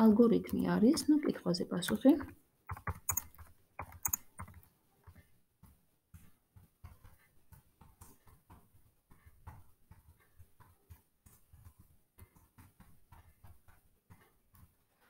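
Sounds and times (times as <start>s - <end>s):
keyboard typing: 0.0s - 4.7s.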